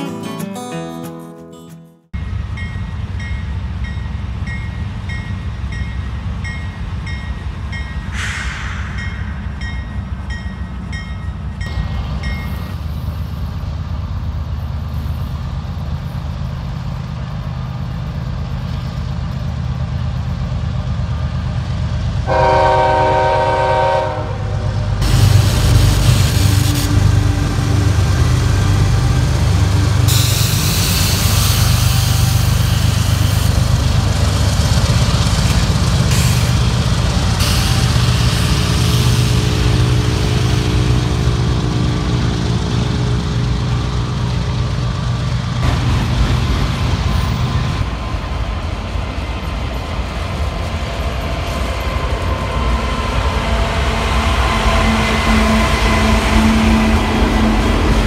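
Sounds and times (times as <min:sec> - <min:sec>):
diesel train engine rumble: 0:02.2 - 0:58.0
wheels hissing on rail: 0:08.0 - 0:10.4, 0:22.3 - 0:58.0
train horn blast: 0:22.2 - 0:28.2, 0:52.3 - 0:58.0.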